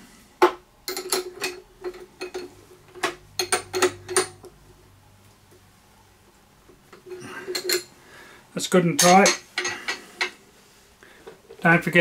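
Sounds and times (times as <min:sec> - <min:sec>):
spanners clinking on metal: 0:00.9 - 0:04.5, 0:06.9 - 0:07.9, 0:08.9 - 0:10.4.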